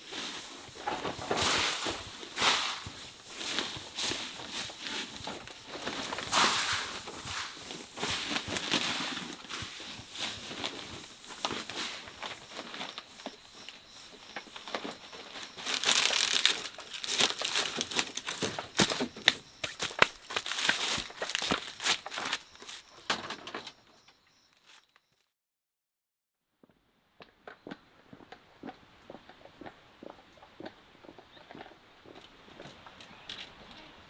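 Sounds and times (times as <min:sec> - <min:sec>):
dry scratchy rustling of bedding: 0:00.0 - 0:23.0.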